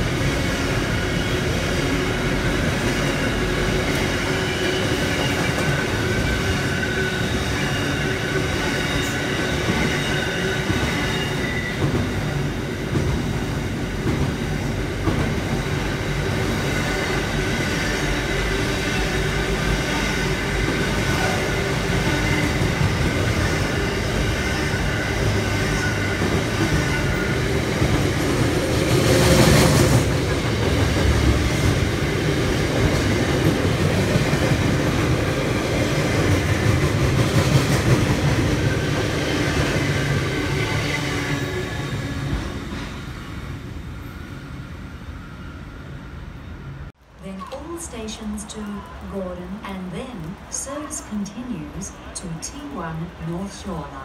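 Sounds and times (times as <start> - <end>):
train wheels rumbling on rails: 0.0 - 46.0
high wheel squeal: 4.2 - 11.8.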